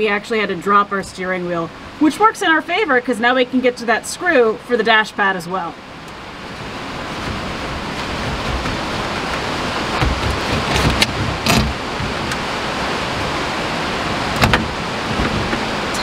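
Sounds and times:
steady rushing noise: 5.8 - 16.0.

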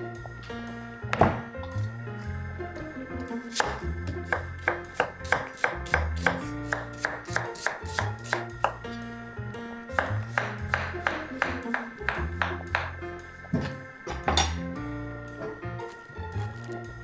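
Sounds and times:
background music with bass line: 0.0 - 17.0
knife chopping on wooden board: 3.5 - 8.9, 10.0 - 14.5.

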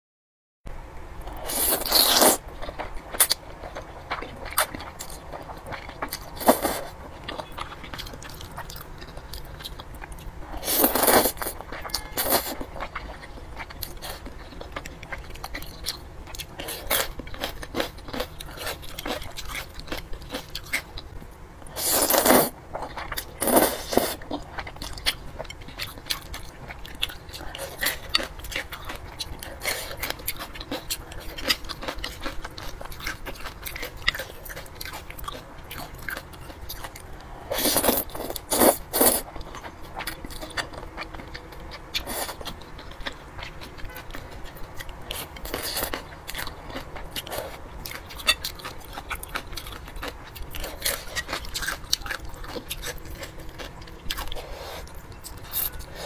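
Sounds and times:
person chewing noodles: 1.2 - 56.0.

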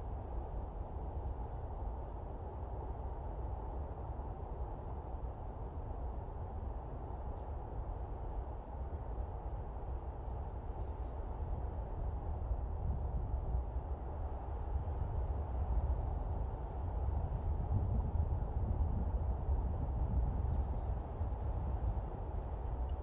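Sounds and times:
wind rushing through pines: 0.0 - 23.0.

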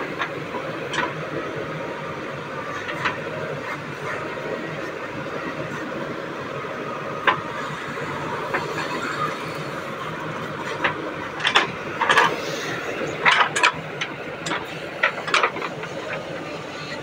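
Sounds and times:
diesel engine running: 0.0 - 17.0
knocks and clatters of digger bucket: 10.4 - 12.4, 13.0 - 16.4.

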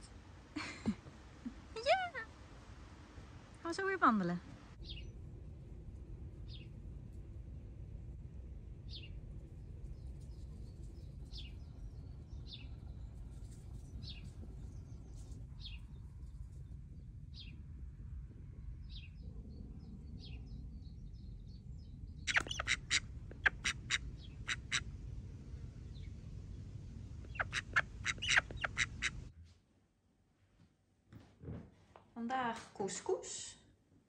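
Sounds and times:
small bird chirping: 4.8 - 5.2, 6.4 - 6.8, 8.9 - 9.2, 9.8 - 17.6, 18.8 - 24.9, 27.2 - 29.3
ducks quacking: 22.3 - 24.9, 27.2 - 29.3.

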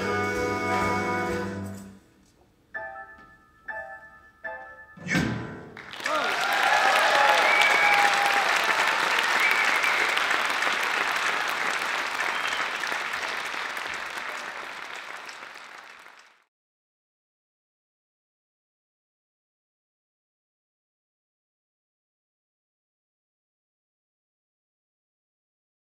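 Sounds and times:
audience applauding and cheering: 5.7 - 16.5.

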